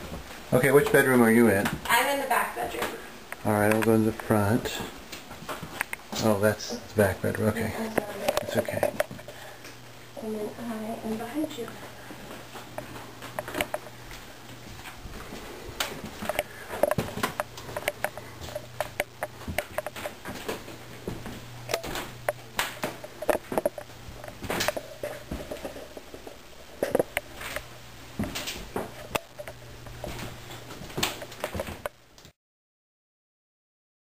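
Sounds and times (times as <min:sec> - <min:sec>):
steady low hum: 0:00.0 - 0:32.2
footsteps: 0:11.0 - 0:31.9
handling knocks and clicks: 0:15.7 - 0:32.3.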